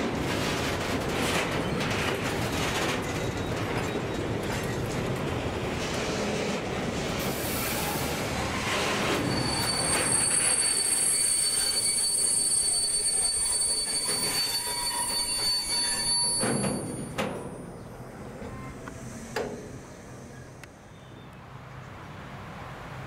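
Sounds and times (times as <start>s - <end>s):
train wheels rumbling on rails: 0.0s - 20.8s
high wheel squeal: 7.5s - 17.2s.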